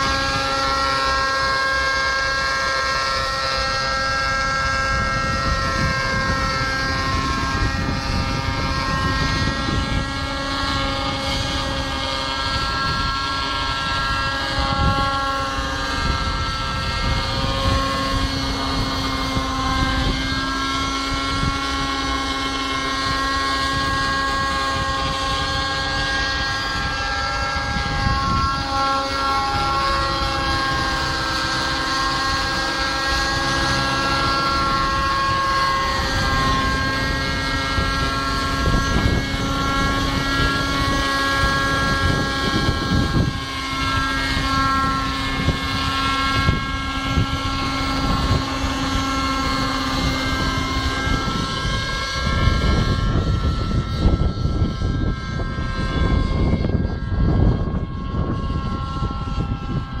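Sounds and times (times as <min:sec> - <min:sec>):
model helicopter engine whine: 0:00.0 - 1:00.0
wind buffeting microphone: 0:00.0 - 1:00.0.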